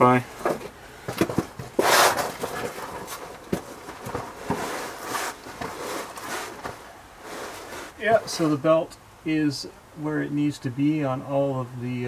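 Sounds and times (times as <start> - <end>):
footsteps: 0.4 - 8.6
loud rustle: 1.2 - 8.5.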